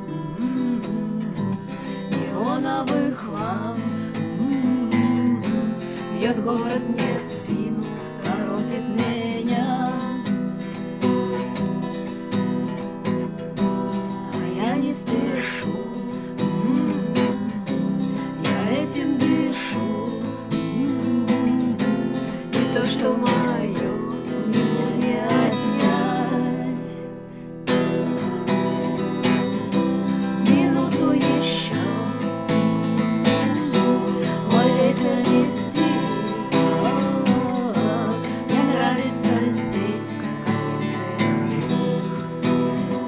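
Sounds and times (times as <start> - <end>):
women singing: 0.0 - 11.8, 12.4 - 43.0
acoustic guitar strummed: 0.0 - 43.0.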